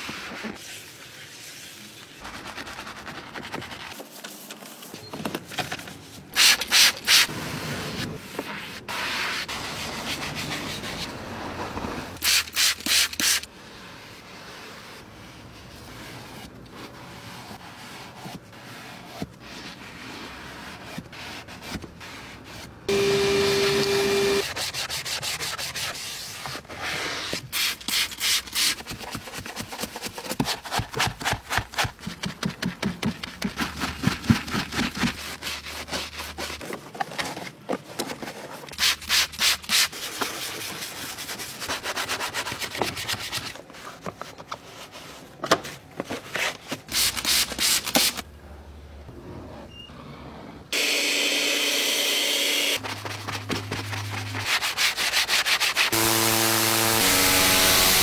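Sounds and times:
loud steady hum: 0:22.9 - 0:24.4, 0:56.0 - 0:58.0.

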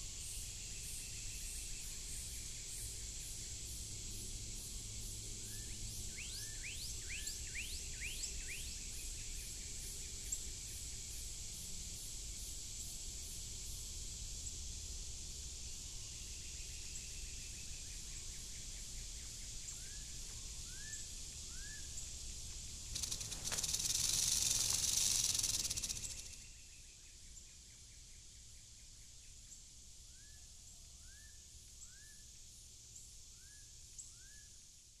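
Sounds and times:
rattlesnake rattle buzzing: 0:00.0 - 0:27.2
high insect-like drone: 0:20.4 - 0:26.7.

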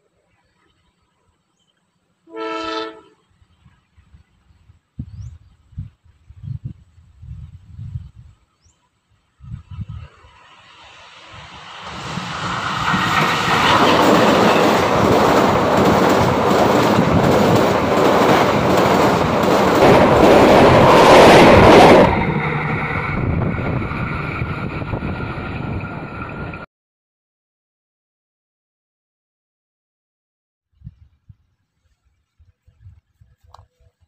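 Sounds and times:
train passing over bridge: 0:09.6 - 0:26.7
train wheels clacking over rails: 0:11.4 - 0:26.6.

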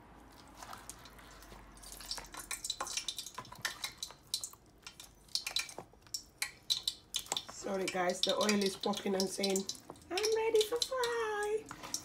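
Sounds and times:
hot oil crackling and popping: 0:00.0 - 0:12.0
wet fish squelched in plastic bowl: 0:00.0 - 0:12.0.

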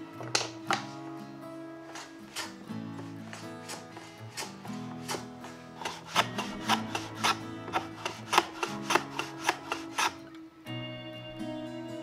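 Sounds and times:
background music: 0:00.0 - 0:12.0
hand plane scraping wood: 0:01.9 - 0:10.3.

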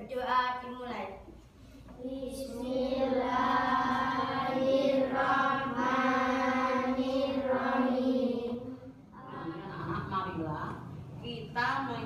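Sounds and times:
children chanting in unison: 0:02.0 - 0:09.6.

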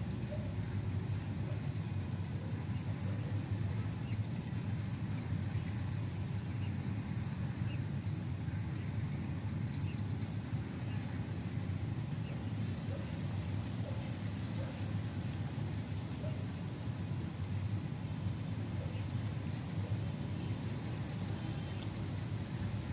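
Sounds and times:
low outdoor rumble: 0:00.0 - 0:22.9.

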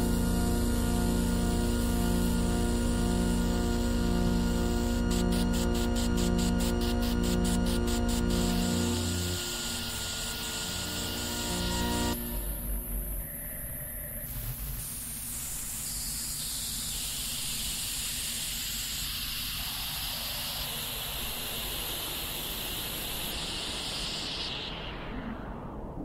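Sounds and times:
steady hissing noise: 0:00.0 - 0:26.0.

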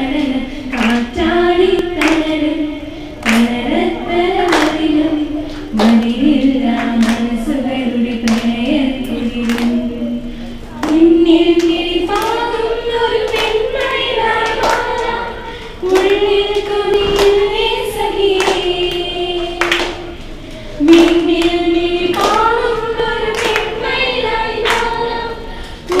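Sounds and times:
girls singing together: 0:00.0 - 0:26.0
sharp hand clap: 0:00.7 - 0:02.3, 0:03.2 - 0:03.6, 0:04.5 - 0:04.9, 0:05.5 - 0:07.3, 0:08.2 - 0:09.8, 0:10.8 - 0:12.5, 0:13.1 - 0:15.2, 0:15.8 - 0:17.5, 0:18.4 - 0:24.0, 0:24.6 - 0:25.0.

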